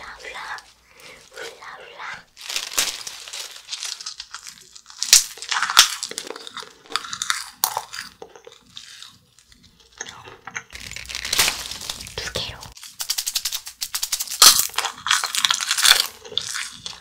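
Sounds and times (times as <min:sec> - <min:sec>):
crunching and chewing candy: 0:00.0 - 0:17.0.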